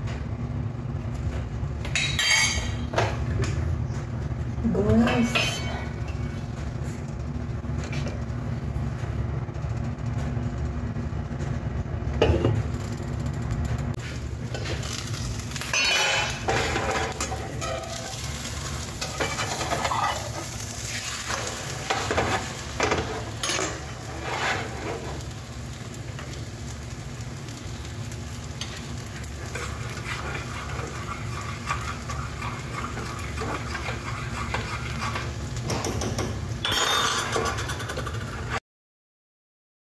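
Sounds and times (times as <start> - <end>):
omelette sizzling in a pan: 14.0 - 38.4
spatula scraping and knocking pan: 15.6 - 25.2, 28.6 - 38.6.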